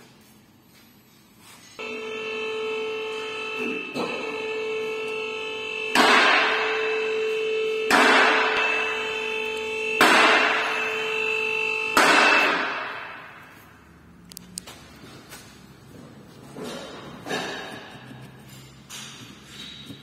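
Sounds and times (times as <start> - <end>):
crash-like hits ringing: 5.8 - 7.1, 7.9 - 9.3, 9.9 - 13.6.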